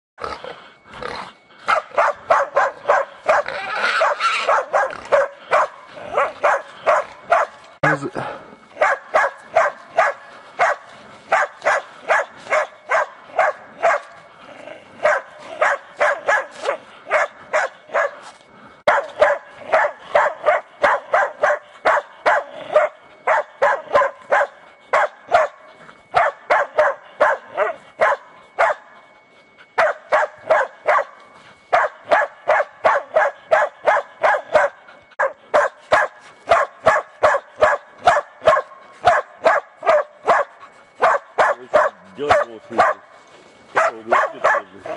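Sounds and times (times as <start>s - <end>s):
dogs barking rapidly: 1.6s - 7.8s, 8.7s - 14.3s, 14.9s - 28.9s, 29.7s - 43.1s, 43.7s - 44.9s.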